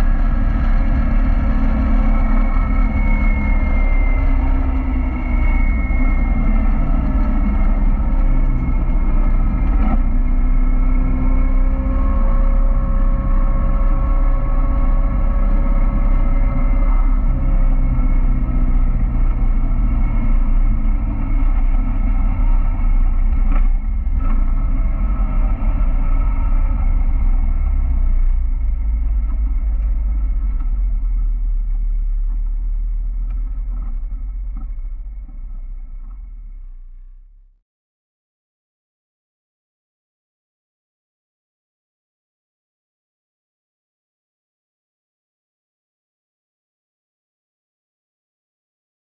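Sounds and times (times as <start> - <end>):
heavy wind: 0.0 - 36.4
car engine running: 0.0 - 37.4
road rumble: 0.0 - 37.5.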